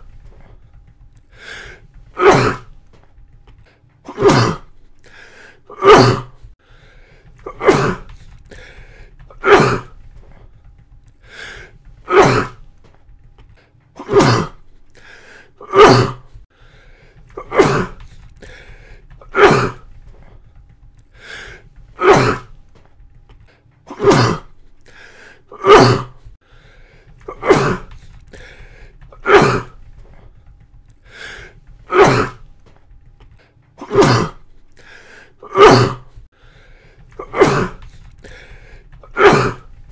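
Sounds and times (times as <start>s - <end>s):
man coughing hard: 4.1s - 4.7s, 33.8s - 34.4s.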